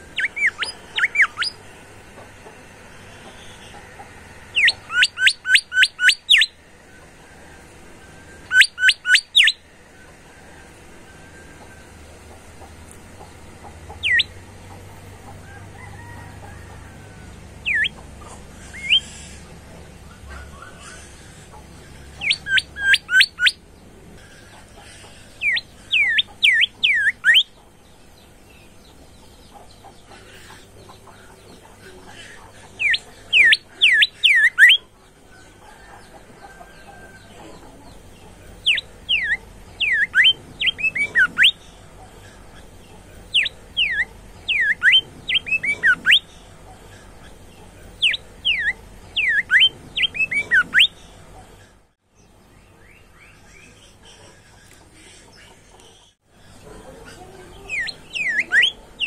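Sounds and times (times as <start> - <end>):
bulbul singing whistled notes: 0.1 - 1.6, 4.6 - 6.6, 8.4 - 9.6, 17.7 - 18.0, 38.7 - 41.6, 43.3 - 46.3.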